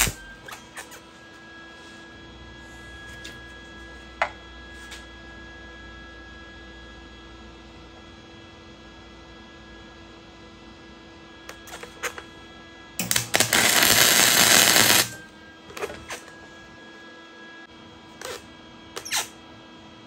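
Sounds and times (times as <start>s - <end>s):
welder arc crackling: 0.0s - 0.9s, 11.5s - 12.2s, 13.0s - 16.3s.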